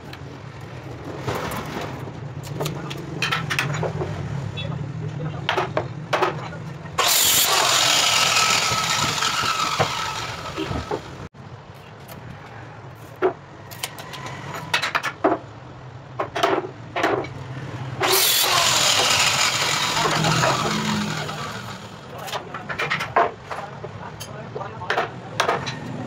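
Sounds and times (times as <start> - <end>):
loud machine whine: 7.0 - 11.2, 18.0 - 22.1.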